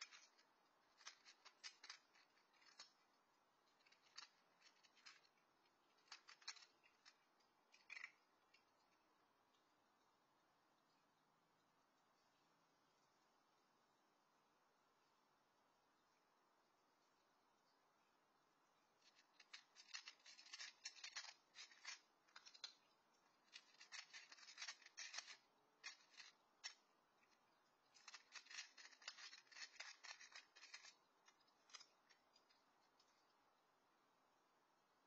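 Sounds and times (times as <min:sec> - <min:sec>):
cat crunching dry kibble: 0:00.0 - 0:08.8, 0:19.0 - 0:33.2.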